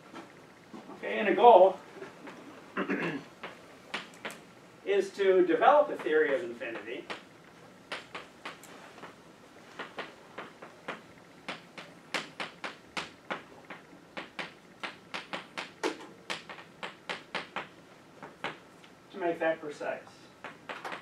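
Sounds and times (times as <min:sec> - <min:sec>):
chalk tapping on blackboard: 0:09.8 - 0:18.6.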